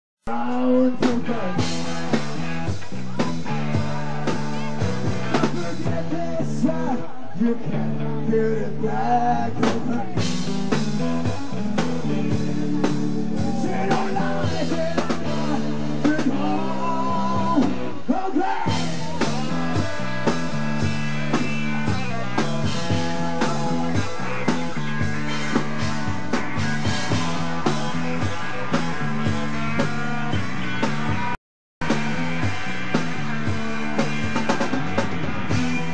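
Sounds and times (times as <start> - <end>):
bass guitar: 0.2 - 35.9
person singing: 0.2 - 35.9
drum kit beat: 0.3 - 6.6, 9.6 - 17.9, 18.7 - 35.9
distorted electric guitars: 0.3 - 35.9.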